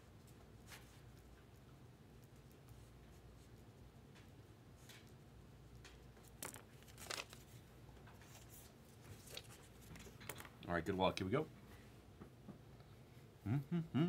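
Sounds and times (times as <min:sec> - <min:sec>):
packaging rustling: 0:06.3 - 0:07.6.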